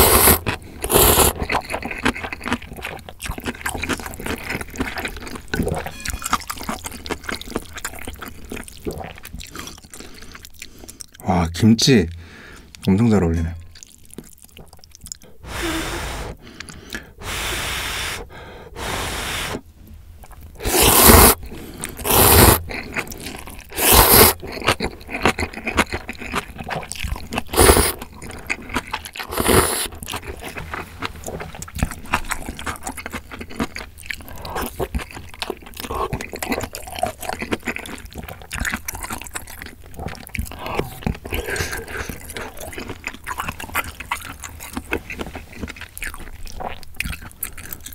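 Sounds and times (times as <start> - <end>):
noodle slurping: 0.0 - 2.5, 15.4 - 19.6, 20.6 - 25.8, 26.7 - 30.5
wet chewing with mouth clicks: 0.0 - 11.2, 13.6 - 17.3, 20.2 - 47.9.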